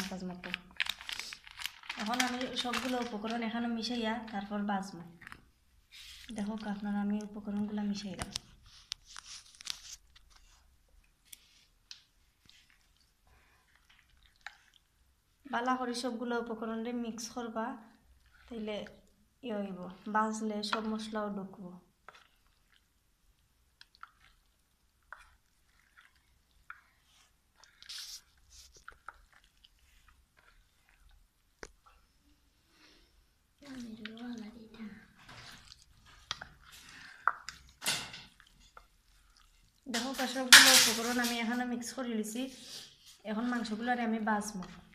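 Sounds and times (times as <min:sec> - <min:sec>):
hand squishing raw chicken: 0:22.0 - 0:40.2
hand kneading raw chicken: 0:33.6 - 0:40.5.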